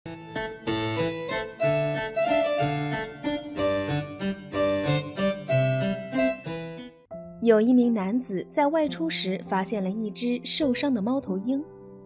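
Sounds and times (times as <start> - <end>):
bouncy harpsichord-like keyboard tune: 0.1 - 7.2.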